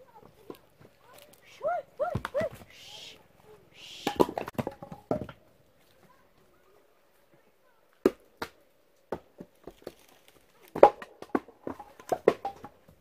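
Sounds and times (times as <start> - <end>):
firewood logs knocking: 2.0 - 2.7, 4.0 - 5.5, 8.0 - 13.0.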